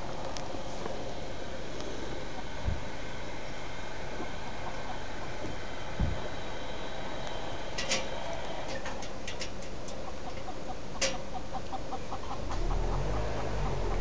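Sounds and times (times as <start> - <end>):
chickens clucking: 1.8 - 6.2, 7.8 - 14.0
wind rumble on microphone: 2.6 - 2.9, 6.0 - 6.3.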